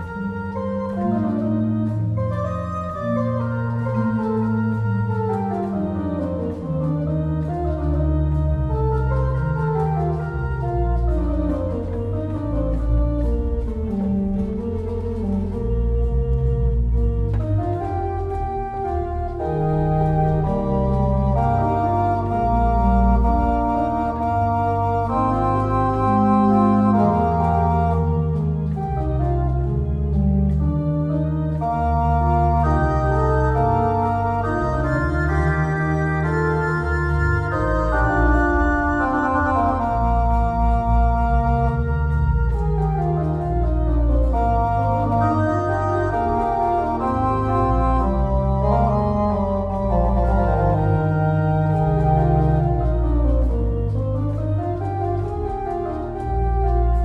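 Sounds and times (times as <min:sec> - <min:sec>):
pipe organ baroque piece: 0:00.0 - 0:57.0.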